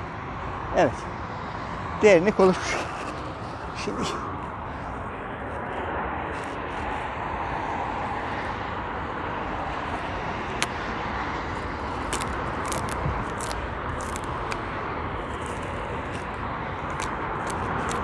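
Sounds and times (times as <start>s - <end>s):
road traffic noise: 0.0s - 18.0s.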